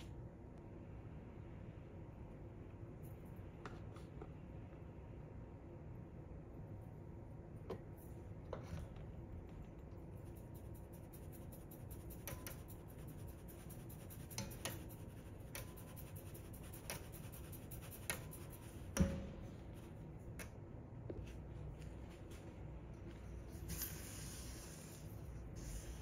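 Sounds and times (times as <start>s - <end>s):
sieve ticking and scratching: 9.4s - 19.0s
sieve knocking on metal bowl: 18.9s - 19.5s.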